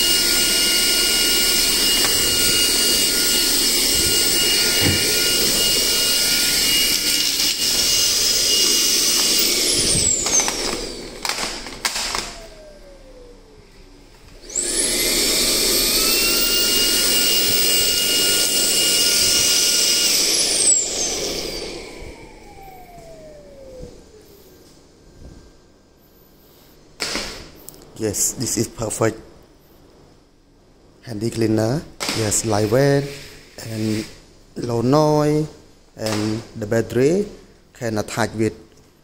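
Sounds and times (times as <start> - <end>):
stick vacuum whining: 0.0 - 25.5.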